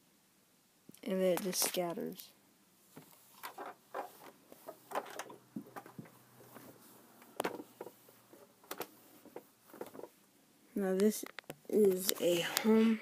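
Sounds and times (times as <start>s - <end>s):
objects being handled and set down: 2.9s - 10.2s.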